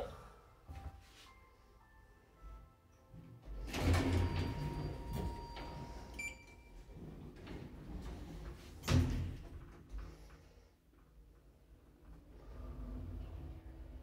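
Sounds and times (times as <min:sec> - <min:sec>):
elevator doors shutting: 0:03.4 - 0:10.2
elevator door thud: 0:03.6 - 0:05.8.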